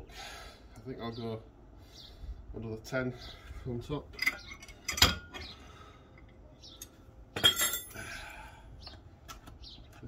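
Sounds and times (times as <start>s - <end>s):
metal clinking and clanking: 4.1s - 5.5s, 6.2s - 8.0s.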